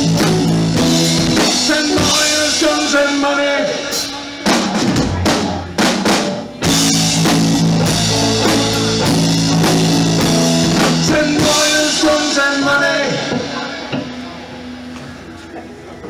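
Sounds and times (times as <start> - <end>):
drum hits: 4.5 - 12.3
rock band chord ringing: 6.6 - 15.1.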